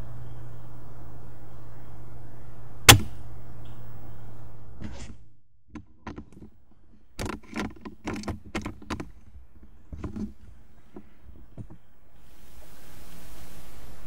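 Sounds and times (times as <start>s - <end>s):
steady low hum: 0.0s - 14.0s
airsoft rifle shot: 2.9s - 3.2s
short irregular clicks and knocks: 5.7s - 11.8s.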